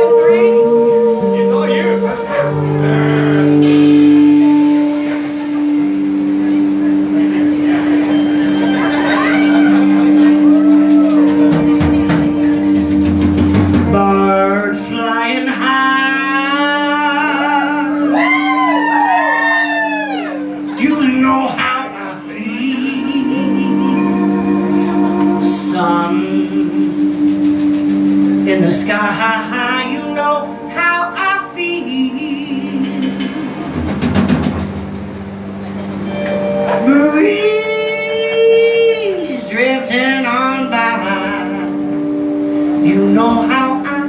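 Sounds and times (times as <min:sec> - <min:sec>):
woman singing long notes: 0:00.0 - 0:12.4, 0:13.8 - 0:33.8, 0:36.0 - 0:44.0
drum and cymbal hits: 0:00.0 - 0:14.3, 0:24.6 - 0:36.7
bass guitar: 0:00.0 - 0:44.0
sustained low band tone: 0:00.0 - 0:44.0.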